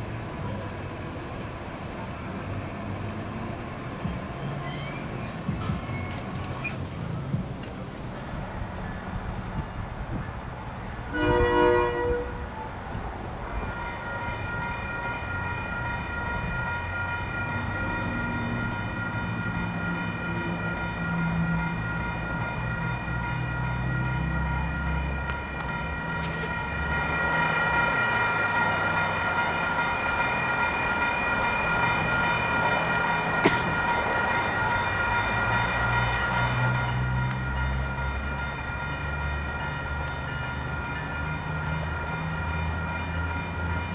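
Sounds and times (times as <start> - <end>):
railroad crossing bell ringing: 11.0 - 43.9.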